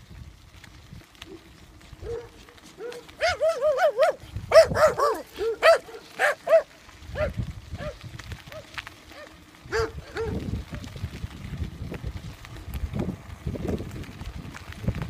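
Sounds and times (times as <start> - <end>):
dog yipping: 2.0 - 10.4.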